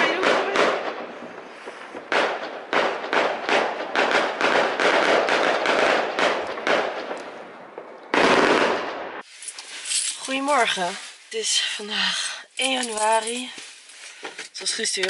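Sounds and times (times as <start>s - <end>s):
fireworks bangs and crackles: 0.0s - 10.1s.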